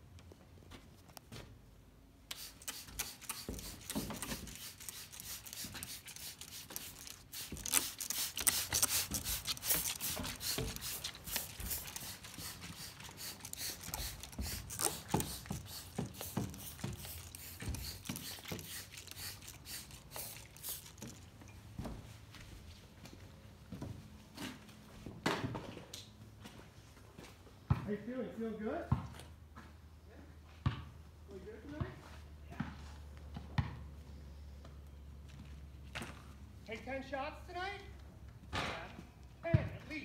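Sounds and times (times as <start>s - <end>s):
spray bottle squirting: 2.3s - 21.2s.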